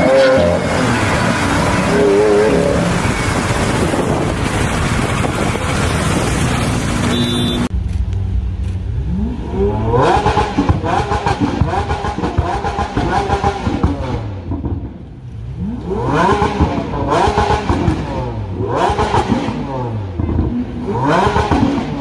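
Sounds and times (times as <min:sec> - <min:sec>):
road and traffic noise: 0:00.0 - 0:22.0
sports car engine running loud: 0:00.7 - 0:13.6
car engine revving up: 0:08.6 - 0:14.9, 0:15.5 - 0:22.0.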